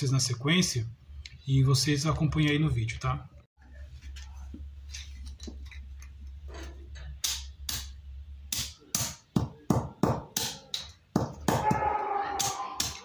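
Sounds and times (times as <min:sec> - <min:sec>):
mallet pounding bones on concrete: 0:08.5 - 0:13.0.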